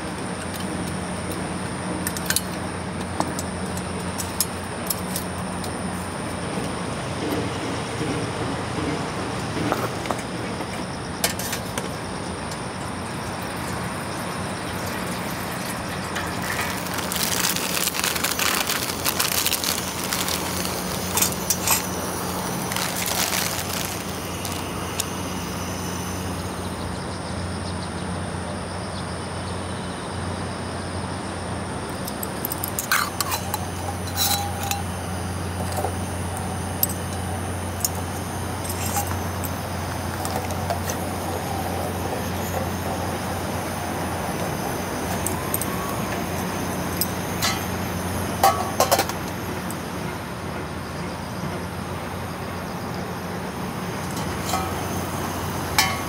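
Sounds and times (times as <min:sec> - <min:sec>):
vehicle interior hum: 0:11.9 - 0:27.6, 0:31.4 - 0:50.0, 0:53.1 - 0:56.0
small clinks and rattles: 0:14.7 - 0:25.1, 0:32.1 - 0:34.9, 0:36.8 - 0:41.1.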